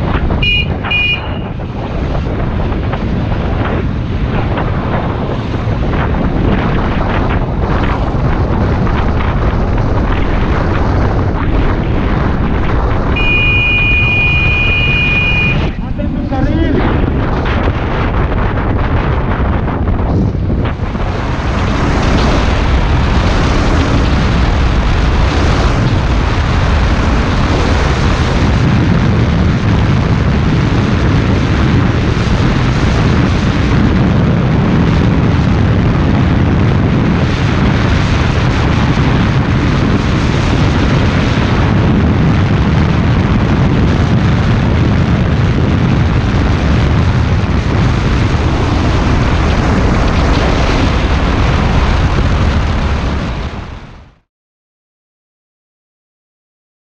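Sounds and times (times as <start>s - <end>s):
motorcycle engine running: 0.0s - 33.9s
wind rushing over microphone: 0.0s - 54.3s.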